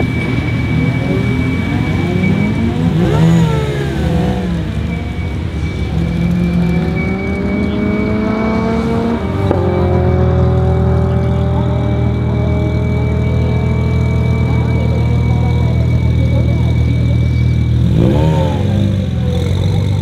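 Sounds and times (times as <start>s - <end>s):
steady high whistle: 0.0s - 9.3s
car engines revving and accelerating: 0.0s - 20.0s.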